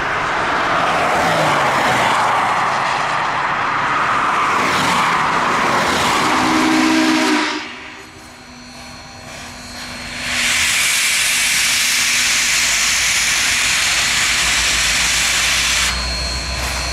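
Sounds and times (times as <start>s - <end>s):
steam locomotive hissing: 5.7s - 16.9s.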